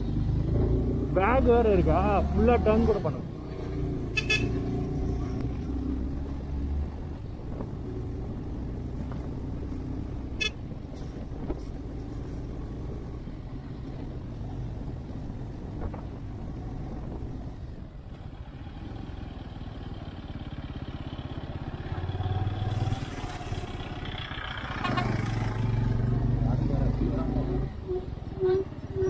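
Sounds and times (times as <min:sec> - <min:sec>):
short horn beep: 0:04.1 - 0:04.6.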